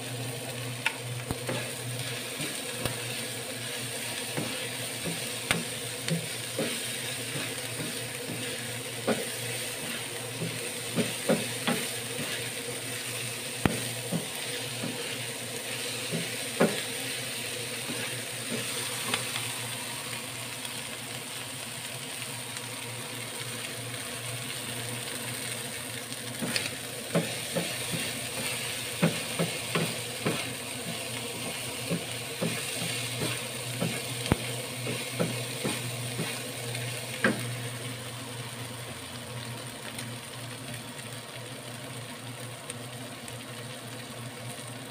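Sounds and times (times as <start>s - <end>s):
food sizzling in oil: 0.0s - 44.9s
spatula knocking and scraping pan: 1.4s - 3.2s, 4.2s - 12.6s, 13.6s - 15.3s, 16.0s - 17.1s, 26.4s - 36.4s.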